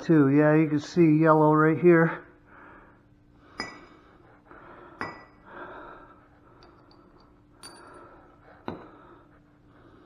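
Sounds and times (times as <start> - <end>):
metal parts clinking on concrete: 6.6 - 8.1.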